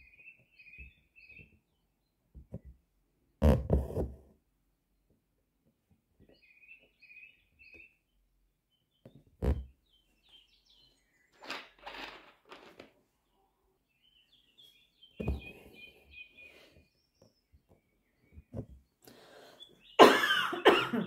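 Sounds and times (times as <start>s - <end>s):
small birds chirping: 0.0s - 2.7s, 5.9s - 11.9s, 13.1s - 20.7s.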